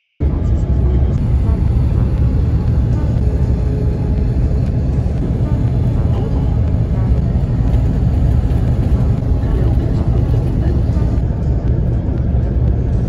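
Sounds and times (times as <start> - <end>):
bus road and engine rumble: 0.2 - 13.0.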